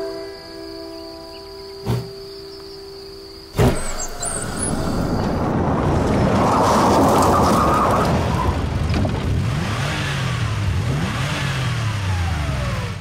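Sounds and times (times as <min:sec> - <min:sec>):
car engine revving: 0:08.1 - 0:13.0.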